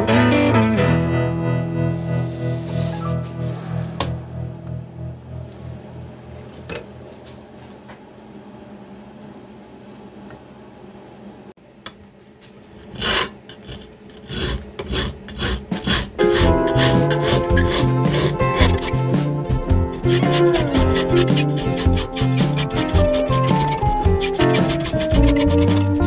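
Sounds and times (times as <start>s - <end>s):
music: 0.0s - 5.8s, 16.2s - 26.0s
file rasping on metal: 12.8s - 26.0s.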